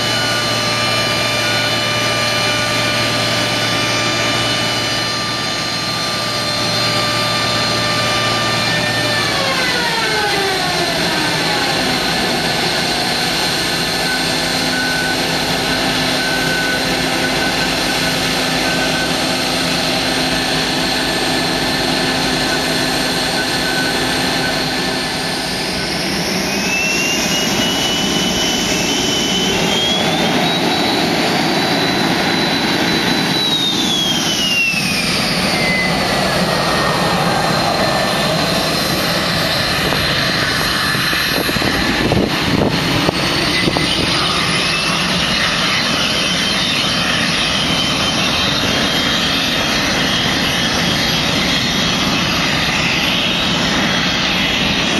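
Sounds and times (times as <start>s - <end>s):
jet engine whine: 0.0s - 54.9s.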